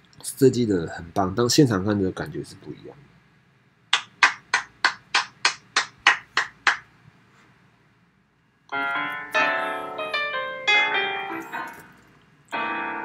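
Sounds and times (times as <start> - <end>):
piano music: 8.7 - 13.0.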